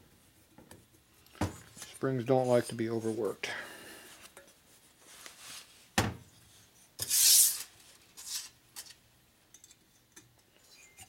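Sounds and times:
metal scrape: 0:07.0 - 0:08.9.

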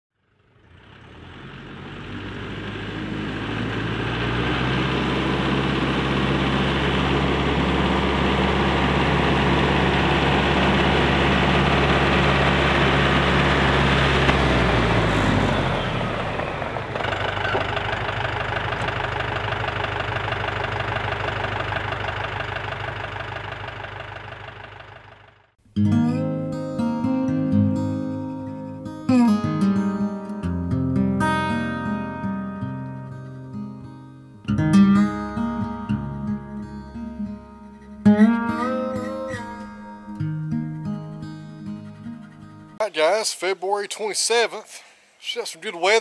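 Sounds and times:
tractor diesel engine under load: 0:00.3 - 0:25.6.

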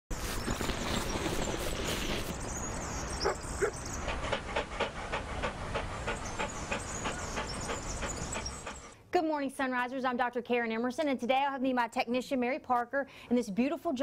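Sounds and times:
dog panting rapidly: 0:03.2 - 0:09.0.

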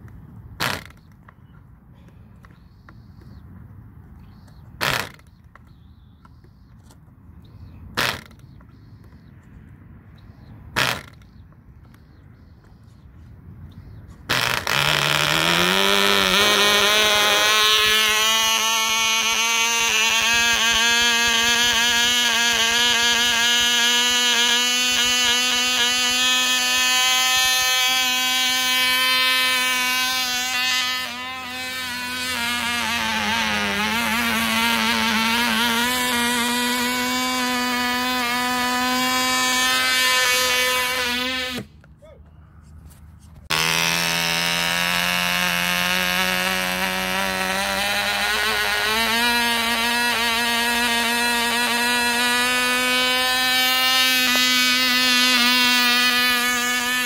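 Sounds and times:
model plane engine buzzing: 0:00.6 - 0:03.4, 0:04.3 - 0:09.2, 0:10.2 - 0:12.9, 0:13.7 - 0:41.8, 0:43.4 - 0:57.0.

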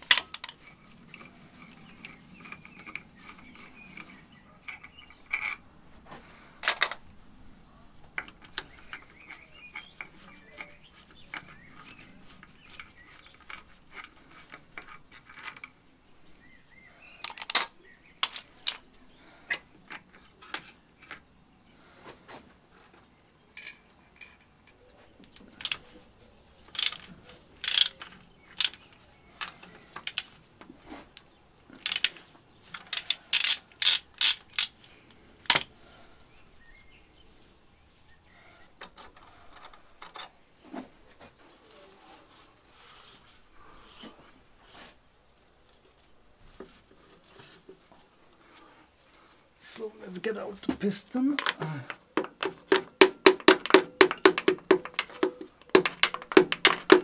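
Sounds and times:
ratchet wrench clicking: 0:27.6 - 0:28.0, 0:32.9 - 0:34.7
small metal knocks: 0:51.4 - 0:57.0.

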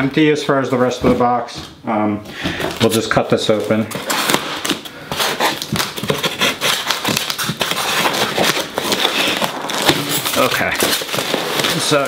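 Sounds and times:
plastic rustling: 0:02.5 - 0:12.0
scissors cutting packing tape: 0:03.9 - 0:12.0.

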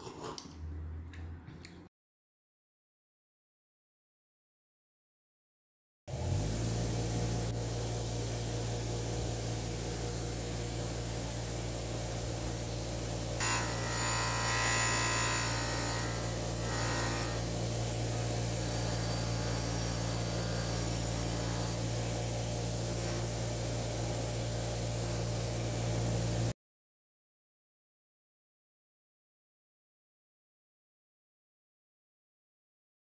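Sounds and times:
polishing motor humming: 0:06.1 - 0:26.5.

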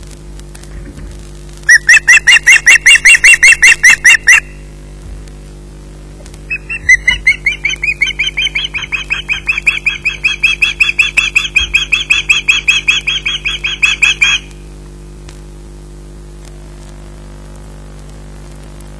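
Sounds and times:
osprey chirping: 0:01.7 - 0:04.6, 0:06.5 - 0:14.5.

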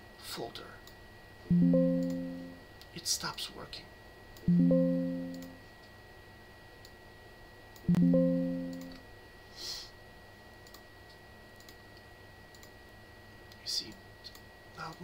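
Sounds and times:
faint mouse clicks: 0:10.6 - 0:12.8.

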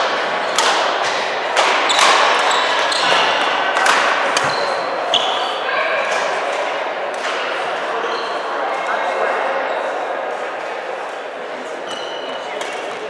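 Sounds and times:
shoes squeaking on wooden floor: 0:04.4 - 0:05.5.

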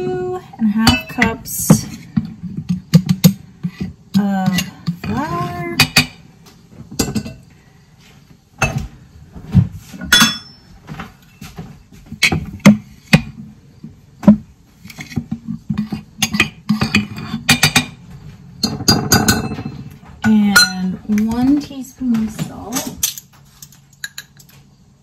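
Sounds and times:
utensils clinking against glass jar: 0:10.0 - 0:10.7, 0:18.6 - 0:24.5.

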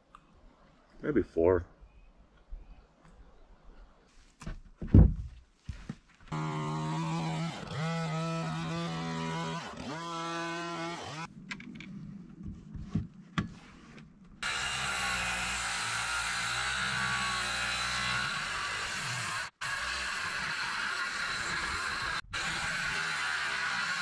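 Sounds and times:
cordless chainsaw cutting wood: 0:06.3 - 0:11.3, 0:14.4 - 0:24.0.

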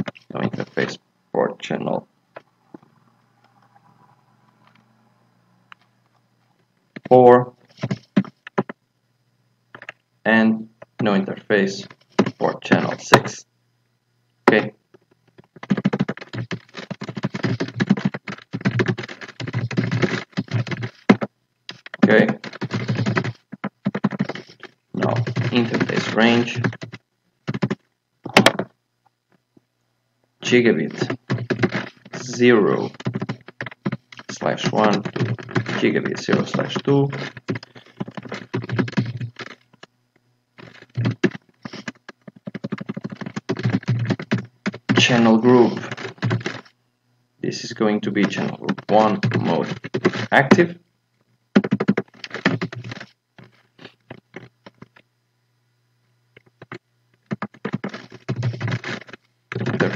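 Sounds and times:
fast typing on keyboard: 0:00.0 - 0:00.9, 0:07.8 - 0:08.8, 0:09.8 - 0:10.0, 0:11.8 - 0:13.4, 0:15.4 - 0:28.7, 0:30.8 - 0:39.9, 0:40.6 - 0:46.7, 0:48.2 - 0:50.7, 0:51.6 - 0:55.0, 0:56.4 - 0:59.9.

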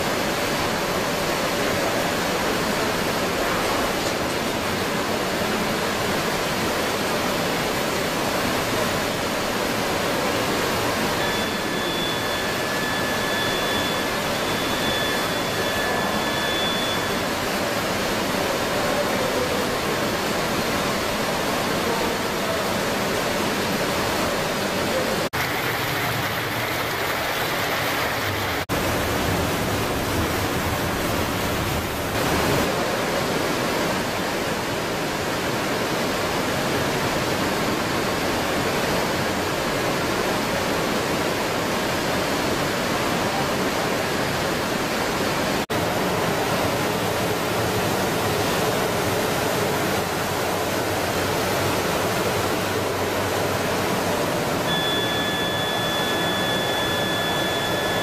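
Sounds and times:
faint high whine: 0:00.0 - 0:32.9, 0:42.1 - 0:58.0
water churning in a tank: 0:00.0 - 0:58.0.

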